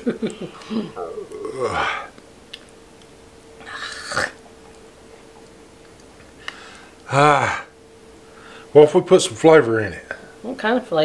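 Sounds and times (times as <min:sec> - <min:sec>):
faint steady hum: 0:00.0 - 0:11.0
person gagging: 0:00.2 - 0:02.1, 0:07.1 - 0:07.7
person groaning: 0:00.6 - 0:02.1, 0:07.1 - 0:07.7.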